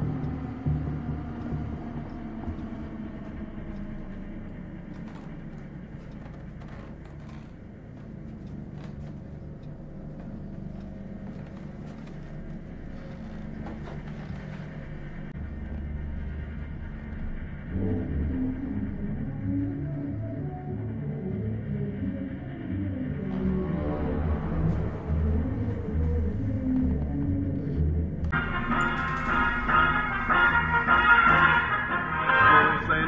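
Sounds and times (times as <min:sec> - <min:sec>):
suspense drone: 0:00.0 - 0:33.0
faint ticks and creaks: 0:01.4 - 0:15.9.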